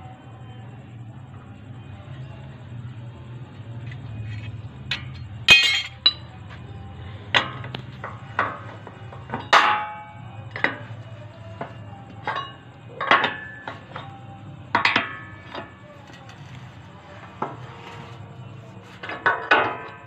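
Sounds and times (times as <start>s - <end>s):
steel clanks from metal shear: 4.3s - 6.2s, 9.3s - 10.8s, 11.6s - 14.1s, 14.7s - 18.3s.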